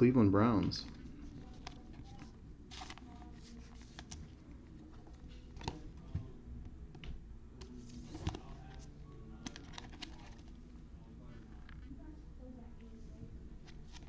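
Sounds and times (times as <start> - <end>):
plastic card sleeves rustling: 0.8 - 6.2, 7.6 - 10.7, 13.6 - 14.0.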